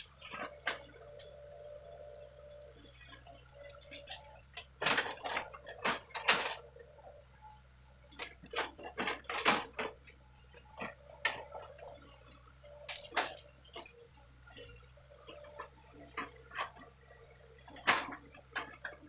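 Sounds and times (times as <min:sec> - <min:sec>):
distant excavator engine hum: 0:00.0 - 0:19.0
sharp clicks and knocks: 0:17.6 - 0:19.0.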